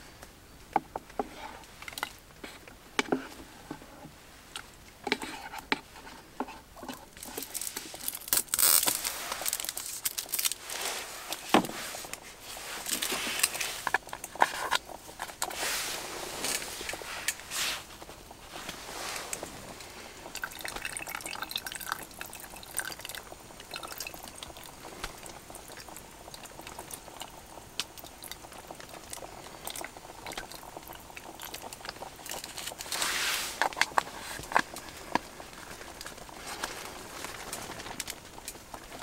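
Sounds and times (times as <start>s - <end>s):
milk pouring into metal pot: 19.7s - 27.5s.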